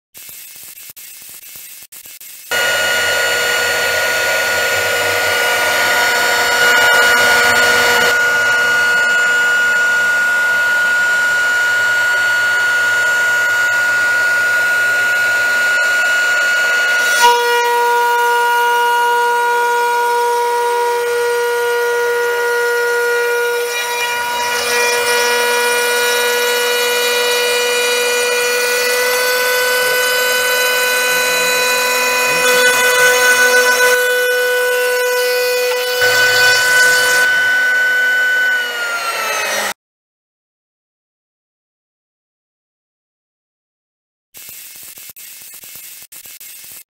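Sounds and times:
wood cutting noise: 0:00.2 - 0:39.8
router spindle high whine: 0:02.5 - 0:39.8.

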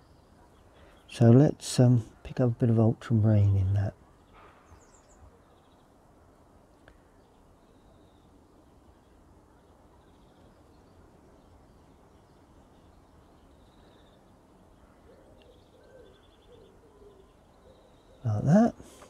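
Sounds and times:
birds chirping trills: 0:00.0 - 0:19.0
lower wavering bird call: 0:15.0 - 0:18.3.

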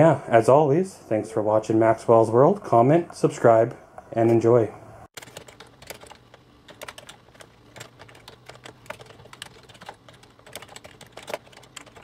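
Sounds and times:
keyboard typing: 0:05.2 - 0:12.0.

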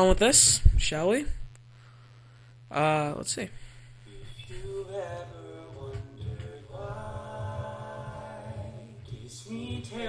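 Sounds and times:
man singing a cappella harmony: 0:04.1 - 0:10.0.

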